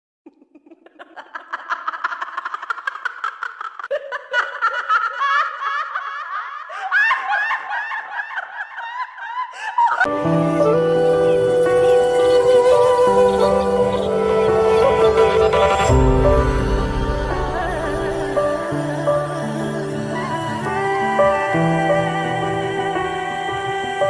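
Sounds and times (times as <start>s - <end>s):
high-pitched giggling laughter: 0.3s - 10.1s
music with held notes: 10.1s - 24.0s.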